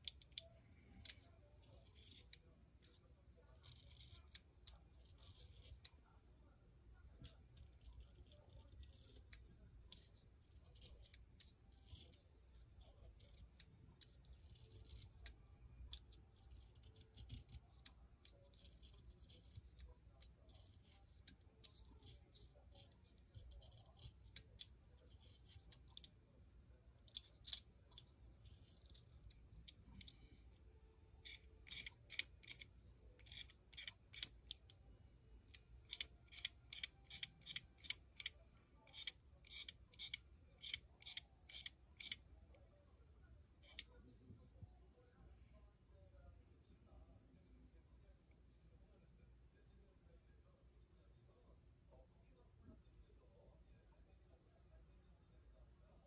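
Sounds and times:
knife blade shaving pencil wood: 0.0s - 6.0s, 7.2s - 26.1s, 31.2s - 34.6s, 35.9s - 42.2s.

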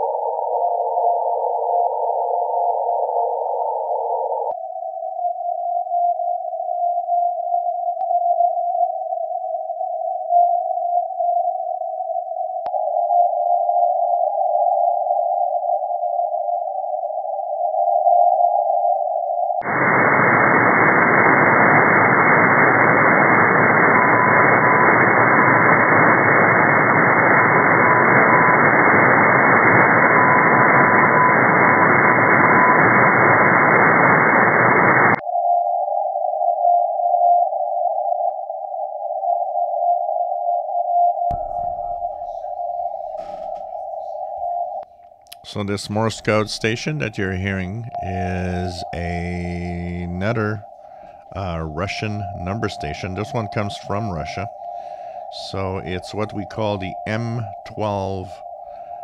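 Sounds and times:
loud radio static: 19.6s - 29.6s, 41.3s - 58.4s
radio hiss: 19.6s - 35.2s, 41.3s - 59.0s
morse code beeping: 45.5s - 58.8s.

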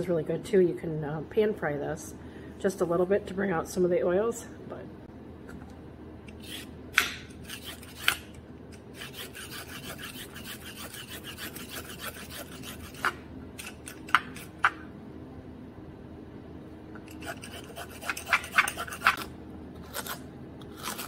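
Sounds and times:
peeler scraping carrot: 6.3s - 6.8s, 7.4s - 14.7s, 17.0s - 21.0s.

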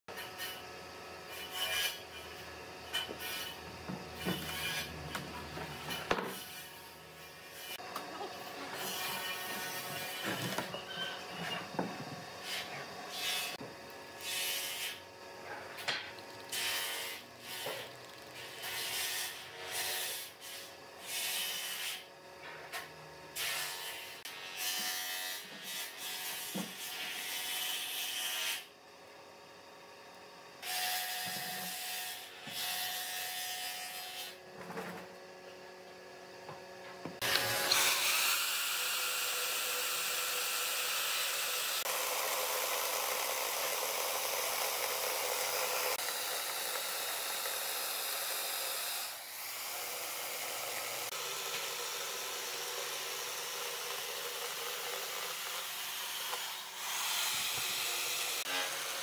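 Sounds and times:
electric chainsaw cutting wood: 0.1s - 28.8s, 30.5s - 35.3s, 36.4s - 59.0s.

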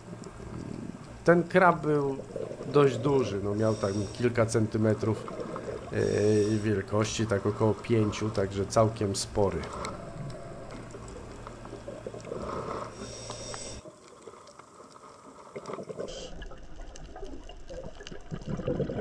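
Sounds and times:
muffled underwater noise: 0.0s - 13.8s
bubbling: 0.0s - 19.0s.

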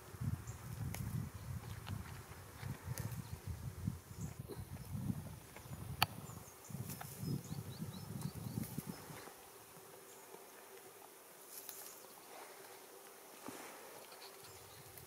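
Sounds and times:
goats munching on branches: 0.6s - 7.4s, 8.1s - 9.4s.

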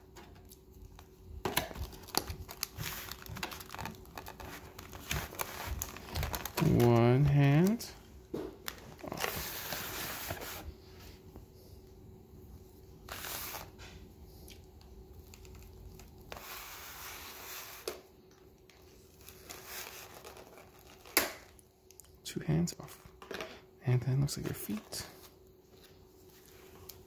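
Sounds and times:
plastic packaging crinkling: 0.4s - 8.0s, 15.1s - 16.4s, 19.0s - 21.6s.

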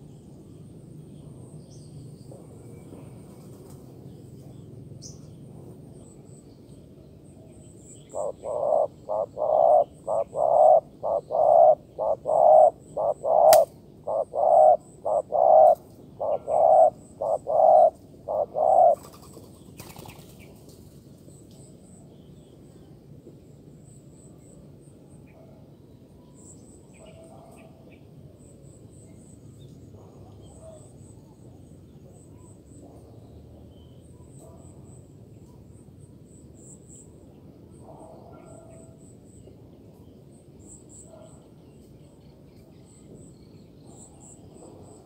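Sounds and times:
dove cooing: 8.1s - 19.3s
sharp click: 13.5s - 13.7s.

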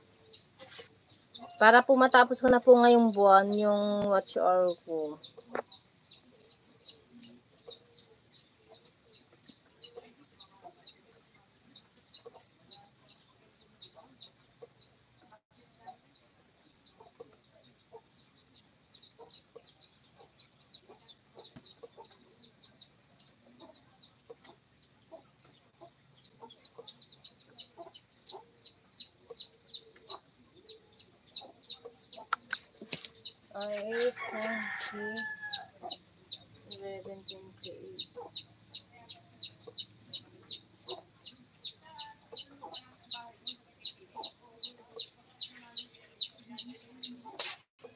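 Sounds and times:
chickens clucking: 0.0s - 47.9s
rooster crowing: 34.2s - 35.7s.

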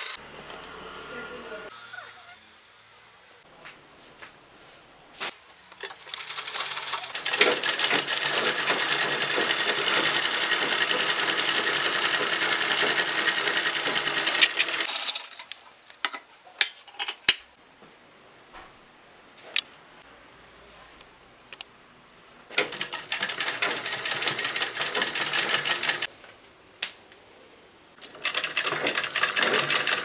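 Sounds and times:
sewing machine running: 5.9s - 15.1s, 22.7s - 26.1s, 28.1s - 30.0s.

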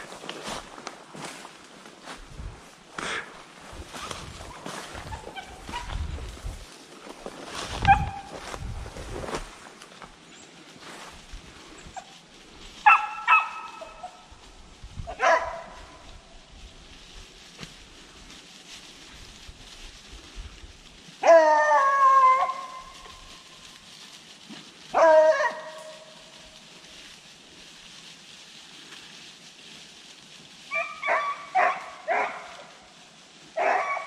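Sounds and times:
hounds howling: 21.2s - 23.4s, 24.9s - 26.4s, 30.7s - 32.6s, 33.6s - 34.0s.

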